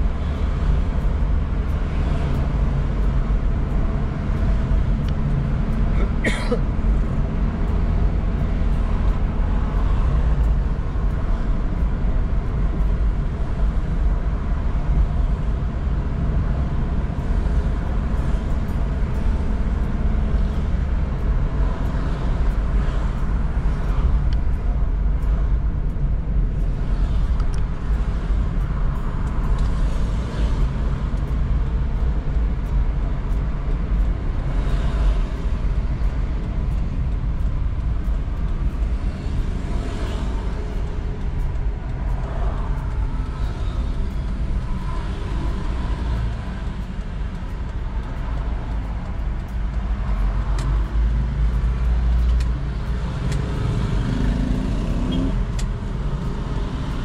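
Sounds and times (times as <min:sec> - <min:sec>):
car engine and road rumble: 0:00.0 - 0:57.0
faint ticks: 0:25.2 - 0:57.0.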